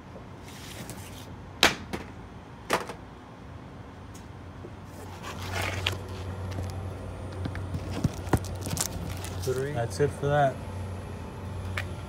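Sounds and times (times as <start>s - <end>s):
air filters scraping and rustling: 0.4s - 1.3s, 4.9s - 6.8s, 7.7s - 10.0s.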